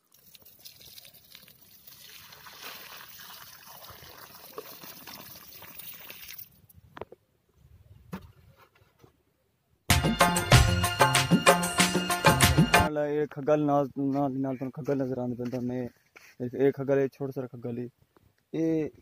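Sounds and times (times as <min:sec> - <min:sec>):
water pouring and splashing: 0:00.0 - 0:06.7.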